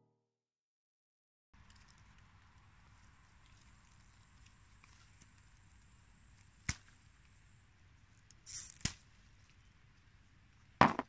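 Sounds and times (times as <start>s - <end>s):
leaves rustling: 1.6s - 10.6s
pea pods snapping: 6.3s - 7.0s, 8.3s - 9.6s.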